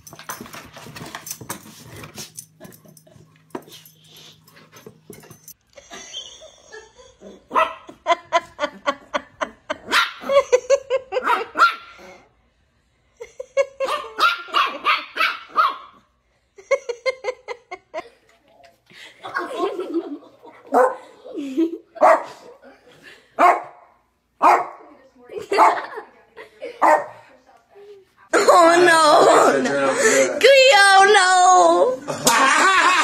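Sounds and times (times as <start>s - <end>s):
puppy barking in high yips: 11.2s - 11.9s, 13.8s - 16.0s.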